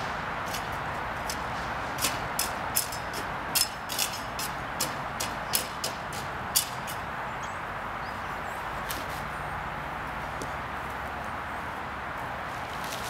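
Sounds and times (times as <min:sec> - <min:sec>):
broom scratching dry grass: 0:08.8 - 0:09.4, 0:12.4 - 0:13.0.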